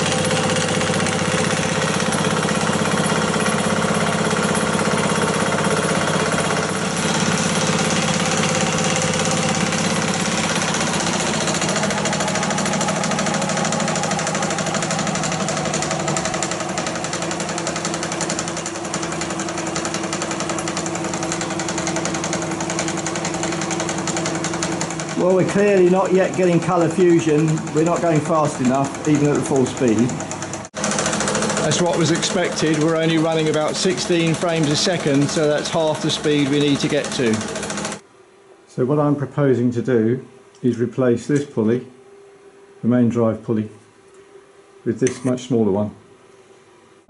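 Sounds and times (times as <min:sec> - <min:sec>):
film projector mechanical clatter: 0:00.0 - 0:38.0.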